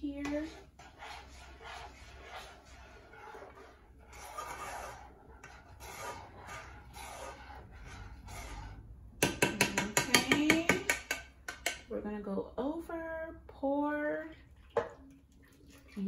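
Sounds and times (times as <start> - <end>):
spoon scraping in a saucepan: 0.0 - 11.9
spoon knocking metal pot: 9.2 - 11.9.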